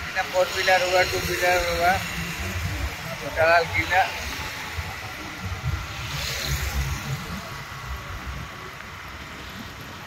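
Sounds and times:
distant traffic hiss: 0.0s - 10.0s.

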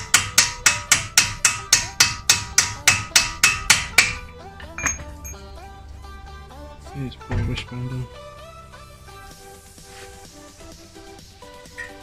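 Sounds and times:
hammer blows on steel: 0.0s - 5.4s.

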